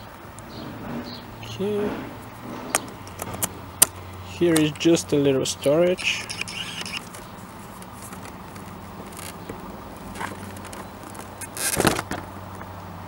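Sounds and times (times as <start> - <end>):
seat clicks and scrapes: 0.0 - 4.9, 6.8 - 12.3
steady low hum: 0.0 - 5.3.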